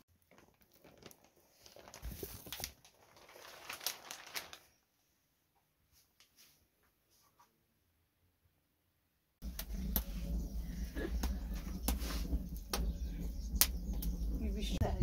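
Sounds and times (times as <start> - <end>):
cloth and plastic sheeting rustling: 0.2 - 5.0.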